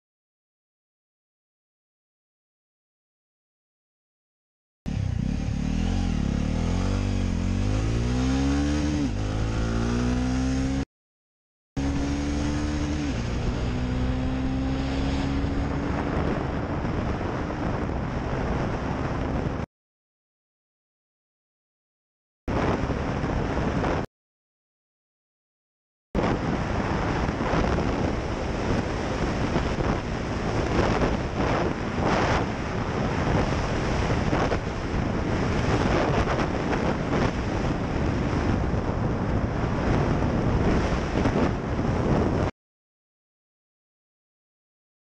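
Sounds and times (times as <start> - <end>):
wind buffeting microphone: 11.9 - 19.6, 22.5 - 24.1, 26.2 - 42.5.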